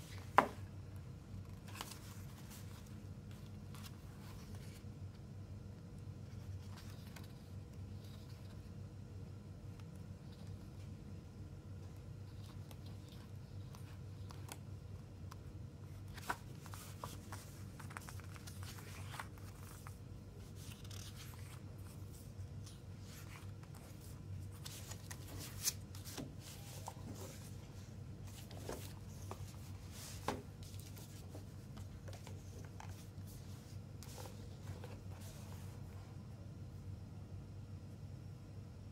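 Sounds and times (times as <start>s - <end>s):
steady low hum: 0.0s - 38.9s
booklet pages turning: 1.3s - 4.9s, 6.2s - 8.7s, 11.8s - 35.8s
paper rustling: 15.9s - 35.8s.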